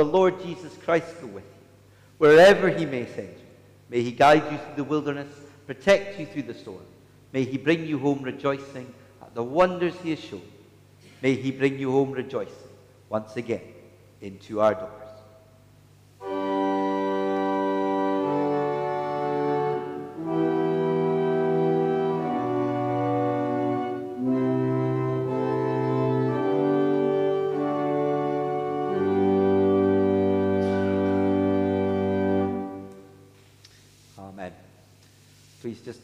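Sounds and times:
pipe organ playing chords: 0:02.2 - 0:06.8, 0:16.2 - 0:33.3.

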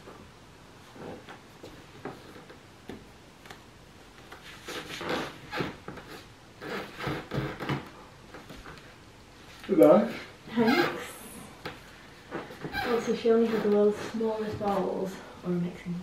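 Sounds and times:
fabric rustling and scraping: 0:00.0 - 0:15.2
zip: 0:04.4 - 0:07.8.

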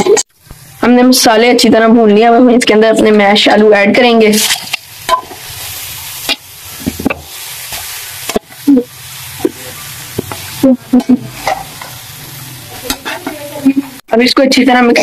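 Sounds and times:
oil sizzling in a pan: 0:00.1 - 0:15.0
metal spatula scraping a pan: 0:04.3 - 0:14.0.

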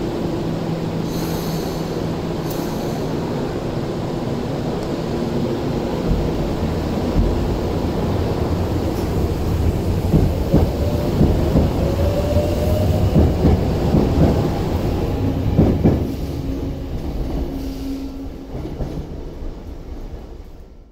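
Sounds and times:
train rumble: 0:00.0 - 0:20.9
train wheels clacking over rail joints: 0:06.0 - 0:14.8, 0:15.4 - 0:16.3.

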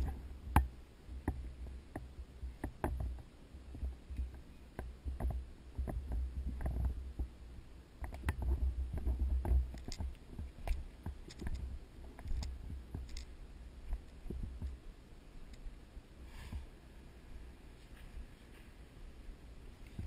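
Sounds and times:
gear clicks and knocks: 0:00.0 - 0:07.3, 0:08.0 - 0:14.8
camera handling rumble: 0:08.1 - 0:13.3.

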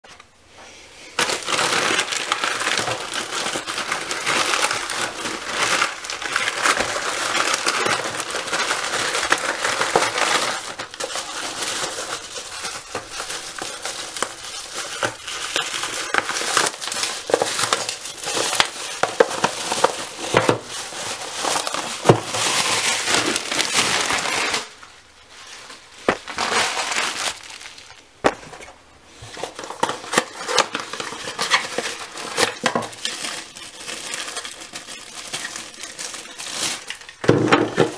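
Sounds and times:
bubble wrap rustling: 0:00.1 - 0:37.9
cardboard boxes set on table: 0:01.1 - 0:37.9
plastic mailer crinkling: 0:01.2 - 0:37.9.

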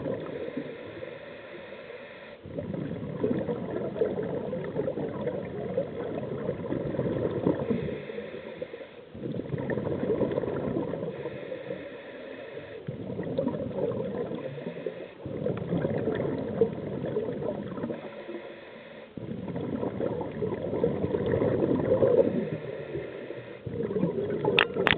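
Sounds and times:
exhaled bubbles gurgling: 0:00.0 - 0:01.3, 0:02.4 - 0:24.9
regulator inhale hiss: 0:00.2 - 0:02.5, 0:07.6 - 0:09.2, 0:11.1 - 0:13.0, 0:14.4 - 0:15.3, 0:17.9 - 0:19.4, 0:22.2 - 0:23.8.

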